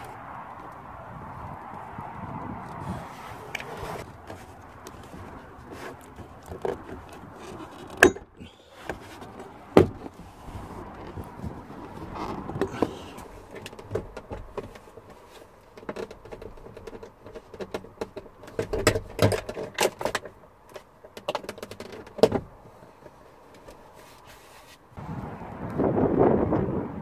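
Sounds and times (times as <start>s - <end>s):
plastic clicks and rattles: 15.7s - 22.4s.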